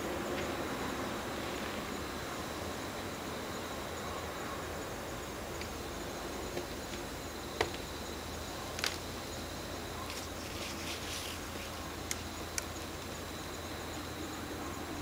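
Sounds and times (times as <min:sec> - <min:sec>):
outdoor background noise: 0:00.0 - 0:15.0
scraping rustle of sliding: 0:10.1 - 0:11.8.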